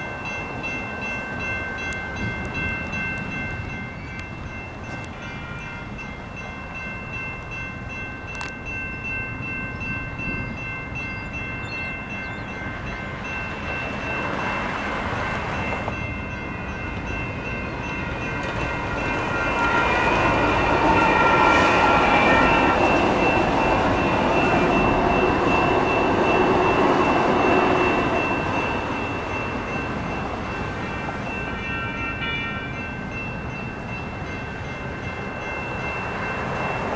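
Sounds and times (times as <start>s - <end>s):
light rail train passing: 0.0s - 36.9s
railroad crossing bells ringing: 0.0s - 36.9s.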